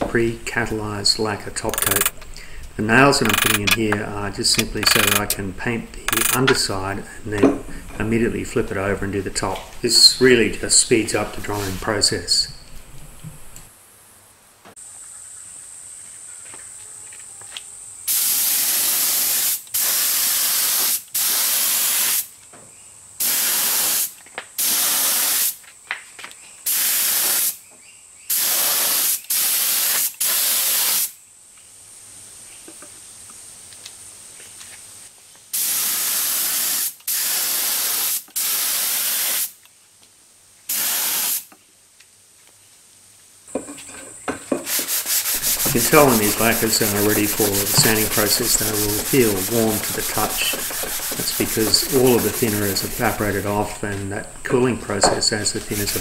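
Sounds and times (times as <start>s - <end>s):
spray gun hissing: 1.7s - 3.8s, 4.4s - 5.4s, 18.1s - 22.3s, 23.2s - 25.6s, 26.7s - 27.6s, 28.3s - 31.1s, 35.5s - 39.5s, 40.7s - 41.4s, 44.7s - 56.0s.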